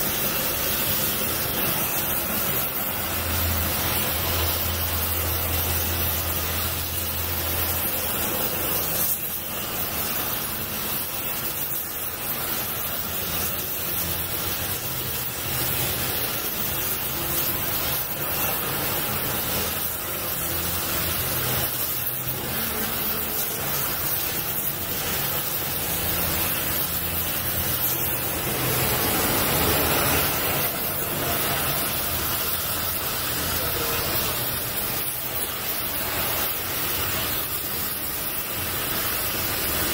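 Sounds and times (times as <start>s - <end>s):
gas torch flame hissing: 0.0s - 39.9s.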